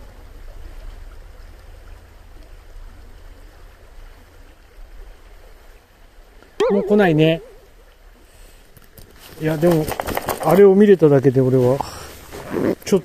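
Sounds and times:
stream rushing over gravel: 0:08.3 - 0:13.0.

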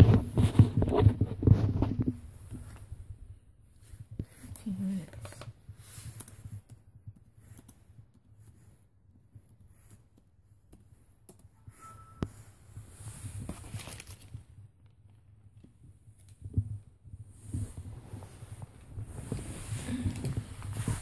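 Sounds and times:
short high beep: 0:11.6 - 0:12.4.

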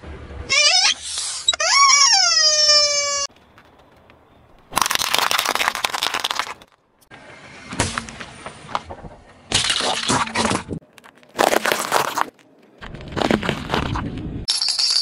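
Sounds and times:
tyre crushing objects: 0:09.6 - 0:14.1.

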